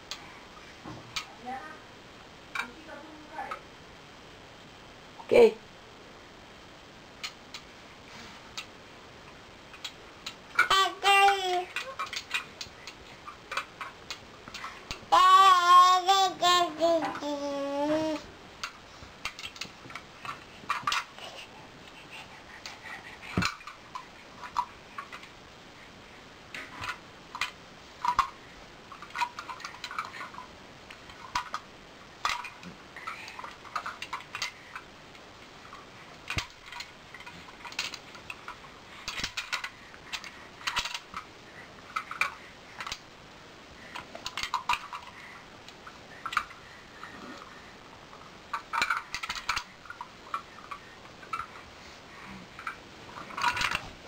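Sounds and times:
plastic toy cars clacking: 9.8 - 17.4, 18.0 - 21.2, 26.6 - 28.3, 28.9 - 30.5, 31.1 - 31.6, 32.2 - 34.8, 36.3 - 41.3, 41.9 - 43.0, 44.2 - 45.2, 46.2 - 46.6, 48.5 - 51.5, 52.6 - 53.9.

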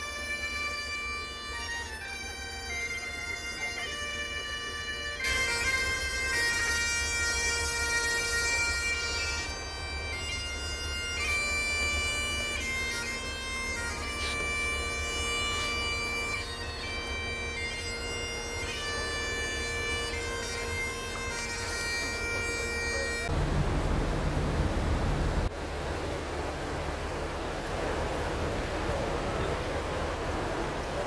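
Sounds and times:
bagpipes playing over drone: 0.0 - 23.4
low rumble: 23.3 - 25.5.

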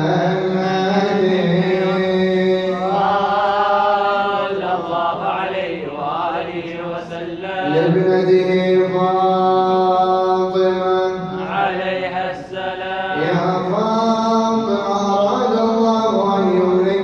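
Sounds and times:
men chanting unaccompanied: 0.0 - 17.0.

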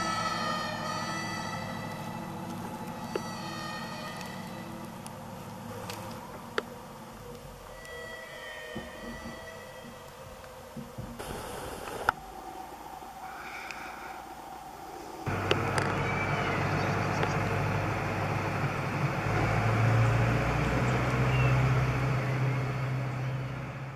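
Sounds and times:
truck engine running: 0.0 - 7.6, 15.3 - 23.9.

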